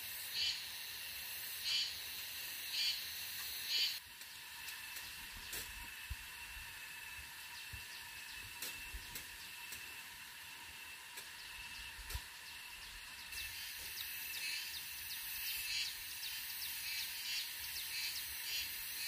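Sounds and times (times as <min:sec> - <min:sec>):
high-pitched insect drone: 0:00.0 - 0:04.1, 0:11.4 - 0:19.0.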